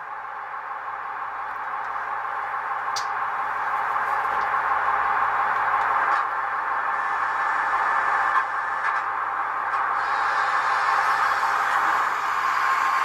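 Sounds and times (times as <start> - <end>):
model motor hissing whir: 9.9 - 13.0.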